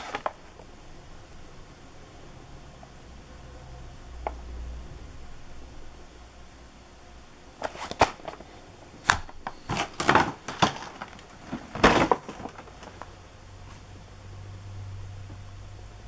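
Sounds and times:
packaging handling noise: 0.0 - 0.6, 7.6 - 13.2.

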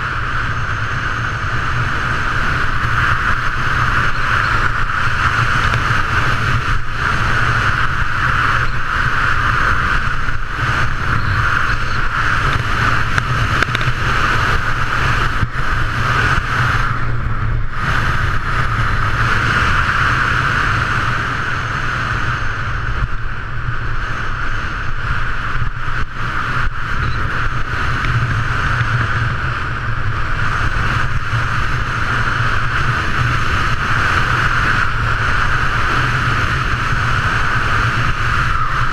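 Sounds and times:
wind rushing on microphone: 0.0 - 38.9
skis running over snow: 0.4 - 17.1.

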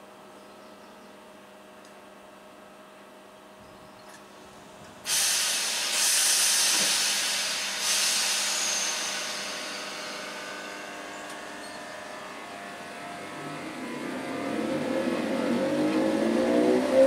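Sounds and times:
train equipment hum: 3.6 - 17.0
train air hiss: 5.0 - 12.9.

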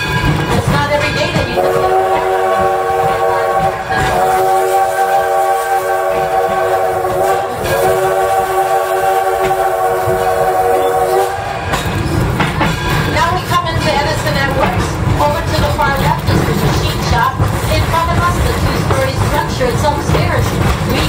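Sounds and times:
moving train rumble: 0.0 - 21.0
steam whistle blasts: 1.4 - 11.8.

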